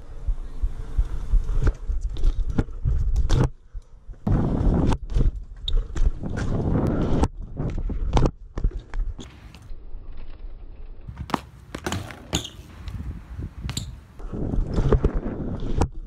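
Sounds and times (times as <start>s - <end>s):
bike clicking and knocking on concrete: 11.1s - 14.0s.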